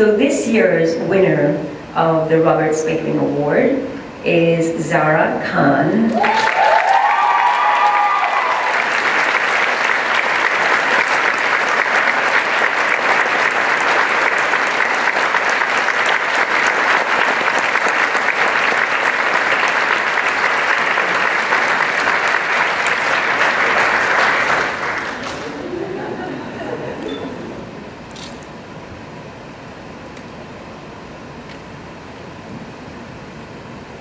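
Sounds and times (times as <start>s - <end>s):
large audience applauding: 6.1s - 26.8s.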